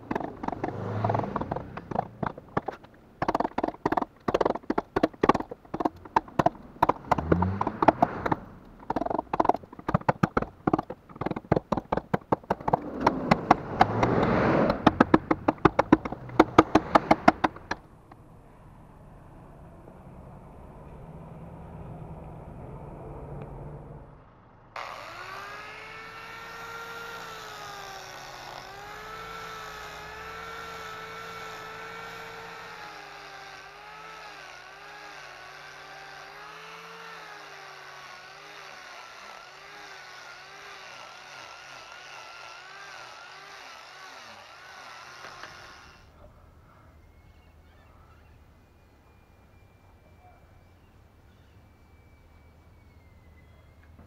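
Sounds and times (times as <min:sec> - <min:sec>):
angle grinder sanding wood: 0:00.0 - 0:17.8, 0:24.8 - 0:46.1
chisel tapping into wood: 0:01.4 - 0:17.8.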